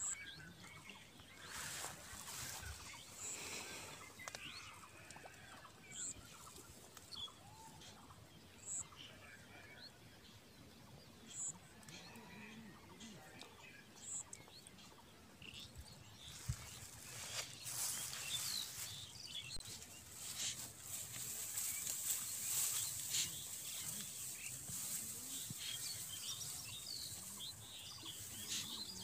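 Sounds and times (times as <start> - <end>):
bird chirps: 0.0 - 4.7.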